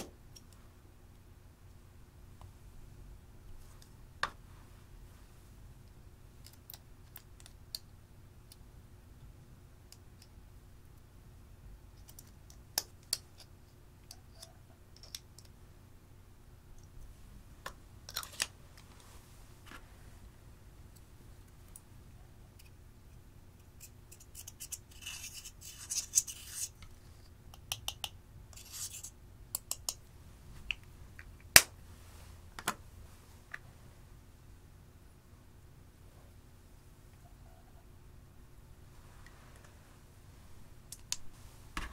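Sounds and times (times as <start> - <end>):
gritty scraping of eyeshadow: 23.8 - 26.8, 28.6 - 29.2.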